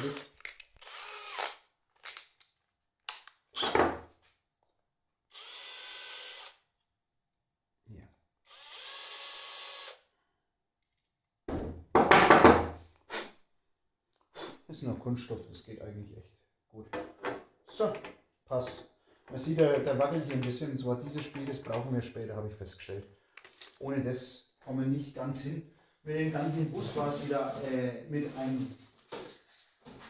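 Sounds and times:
cordless drill running: 0.0s - 1.6s, 5.3s - 6.6s, 8.4s - 10.1s.

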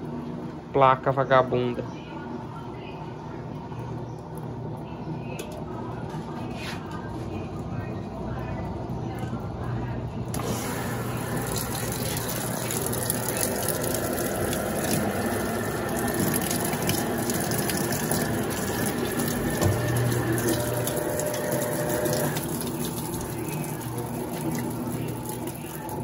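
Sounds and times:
washing machine motor hum: 0.0s - 26.0s
water pouring into drum: 10.4s - 26.0s.

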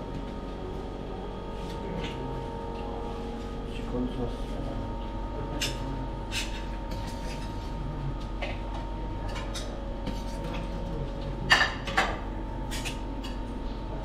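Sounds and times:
dishes and cutlery clinking: 5.6s - 7.8s, 8.4s - 10.8s, 11.4s - 13.4s.

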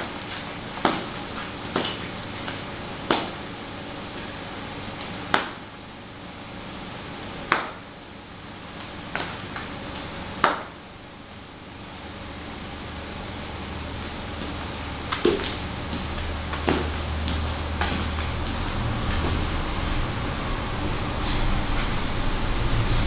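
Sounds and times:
stiletto heels clicking on tile: 14.4s - 19.6s.

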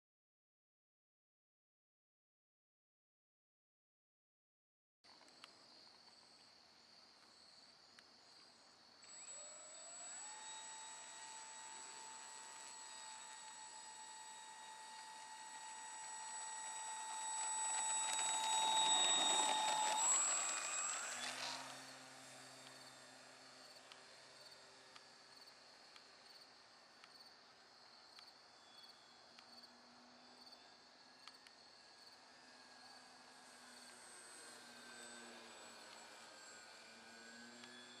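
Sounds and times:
electric motor and propeller whine: 8.5s - 38.0s
crickets chirping: 26.2s - 30.6s.

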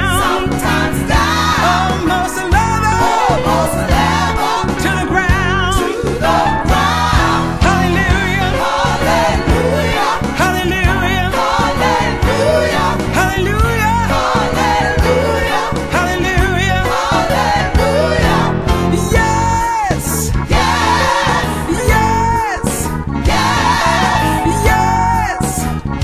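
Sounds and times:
song with vibrato singing: 0.0s - 26.0s.

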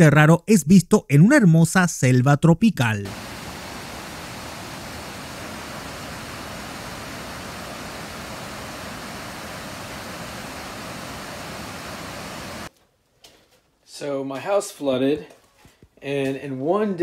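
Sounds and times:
water rushing over rocks: 3.1s - 12.7s.

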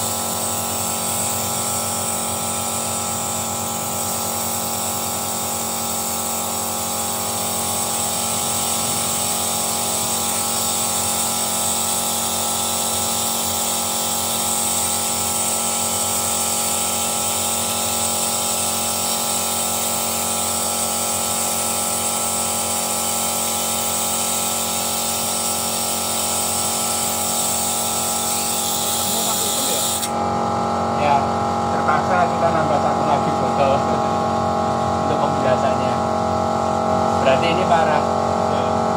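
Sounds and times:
hiss of air: 0.0s - 30.1s
machine whine and hum: 0.0s - 38.9s.

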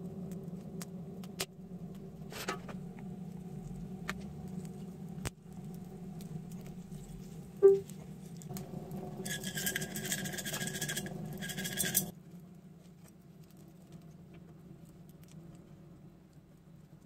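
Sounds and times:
low steady hum: 0.0s - 12.9s
cloth rubbing metal jug: 8.5s - 12.1s
metal jug clinking on tin: 8.6s - 12.1s.

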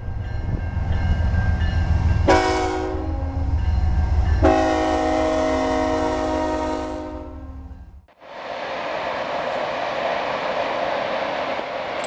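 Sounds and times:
locomotive air horn blasts: 2.3s - 3.5s, 4.4s - 7.7s.

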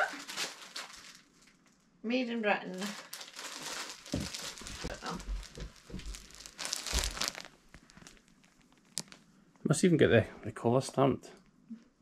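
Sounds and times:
plastic packaging crinkling: 0.0s - 1.9s, 2.6s - 9.3s.

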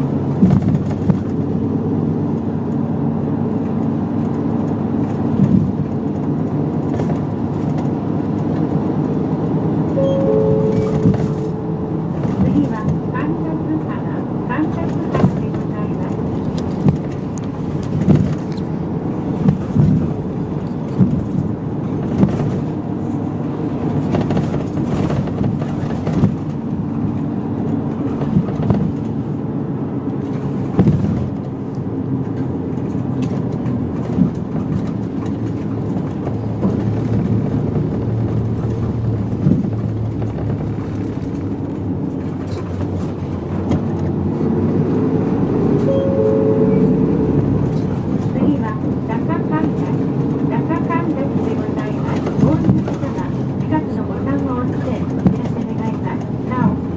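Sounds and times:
bus engine and road hum: 0.0s - 56.9s
body knocks and rattles: 0.3s - 1.7s, 3.7s - 8.6s, 10.7s - 13.0s, 14.8s - 29.2s, 30.2s - 44.6s, 51.8s - 56.9s.

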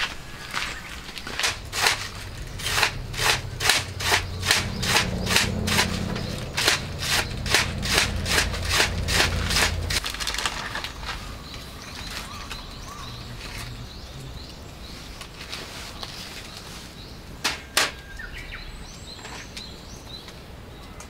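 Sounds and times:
low steady hum: 0.0s - 11.8s.

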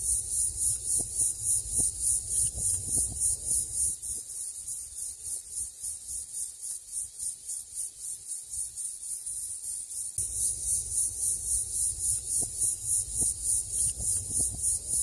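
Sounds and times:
insects buzzing in pulsing chorus: 0.0s - 15.0s.

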